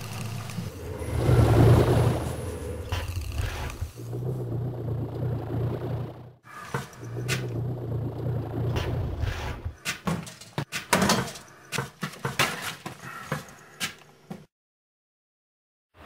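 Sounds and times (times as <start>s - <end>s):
low machine hum: 0.0s - 9.8s.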